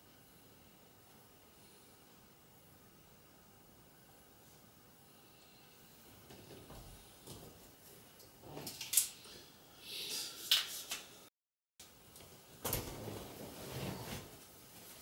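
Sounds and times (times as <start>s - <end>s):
person shifting on leather sofa: 12.7s - 14.5s
rustling: 12.7s - 15.0s.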